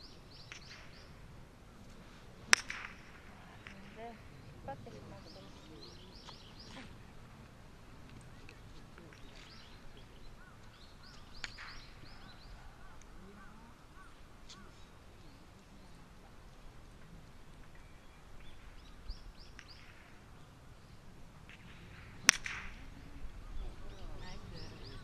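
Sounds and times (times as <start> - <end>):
birds chirping: 0.0 - 25.0
golf club striking ball: 2.4 - 4.4, 10.4 - 12.6, 21.4 - 23.0.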